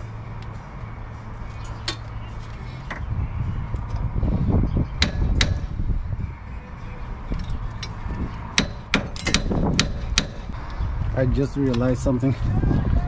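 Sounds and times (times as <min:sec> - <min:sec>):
hammer striking steel: 0:05.0 - 0:05.7, 0:07.8 - 0:10.5.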